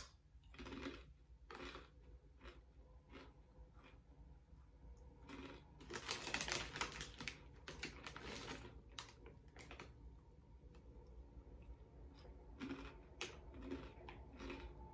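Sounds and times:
plastic snack packet crinkling: 0:05.2 - 0:10.6.

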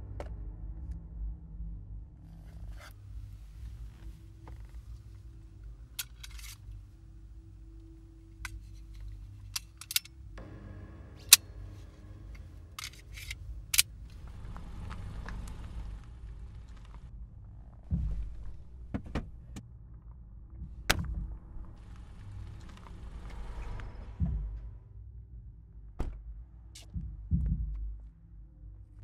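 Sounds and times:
low steady hum: 0:00.0 - 0:29.0
pistol mechanical clicks and snaps: 0:06.0 - 0:06.7, 0:08.4 - 0:10.2, 0:12.8 - 0:13.9.

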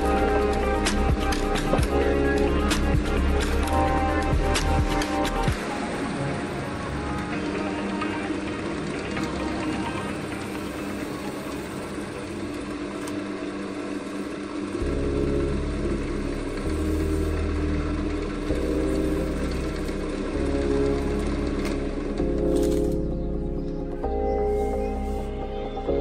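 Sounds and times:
deep bass line: 0:00.0 - 0:05.6, 0:14.8 - 0:26.0
background music: 0:00.0 - 0:26.0.

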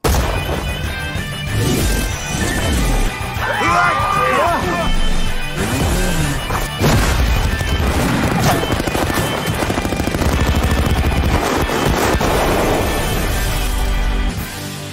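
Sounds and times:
dramatic trailer music: 0:00.0 - 0:14.9
rapid automatic gunfire: 0:06.9 - 0:13.2.

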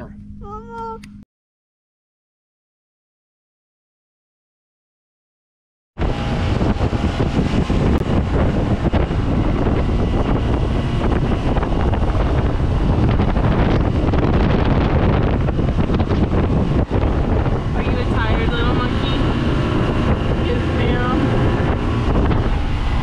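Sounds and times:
boat motor: 0:06.0 - 0:23.0
wind buffeting the microphone: 0:06.0 - 0:23.0.

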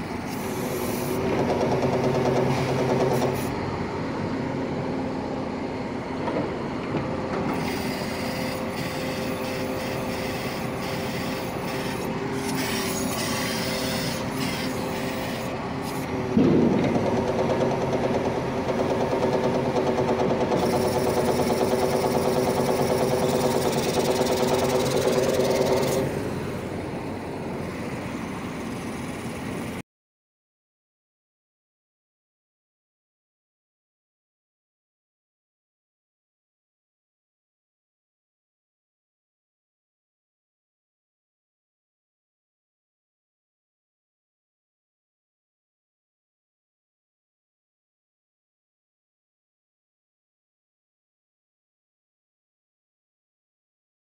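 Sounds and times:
hydraulic machine hum: 0:00.0 - 0:29.8.

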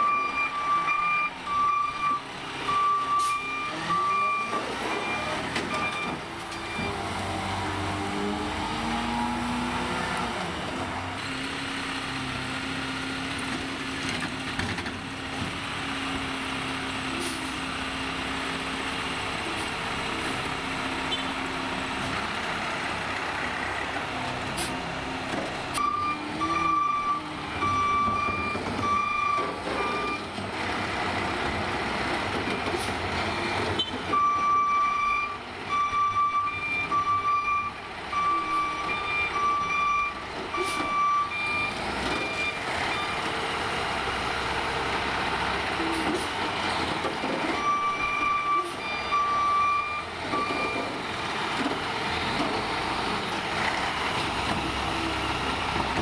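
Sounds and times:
truck beeping alarm: 0:00.0 - 0:10.5, 0:25.7 - 0:30.4, 0:32.4 - 0:45.0, 0:45.6 - 0:56.0
garbage truck running: 0:00.0 - 0:56.0.

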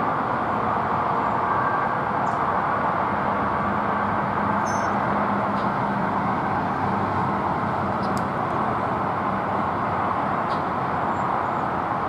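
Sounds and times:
urban roar: 0:00.0 - 0:12.0.

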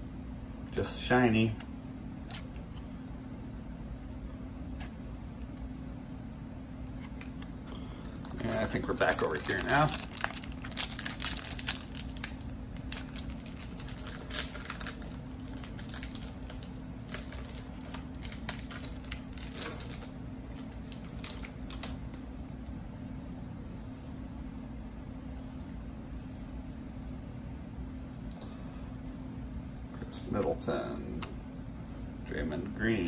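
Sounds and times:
low background hum: 0:00.0 - 0:33.0
cards being handled: 0:06.9 - 0:22.2
foil pack tearing and crinkling: 0:08.1 - 0:22.0.

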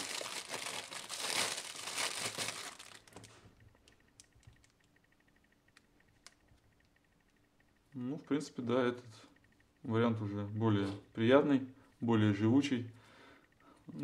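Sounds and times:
plastic bag crinkling: 0:00.0 - 0:03.5.

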